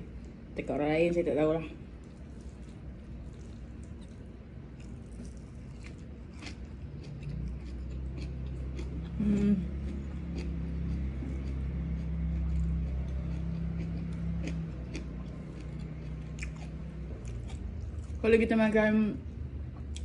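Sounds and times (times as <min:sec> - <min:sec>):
low steady hum: 0:00.0 - 0:20.0
chewing and mouth clicks: 0:02.0 - 0:18.2
person humming: 0:09.1 - 0:09.8.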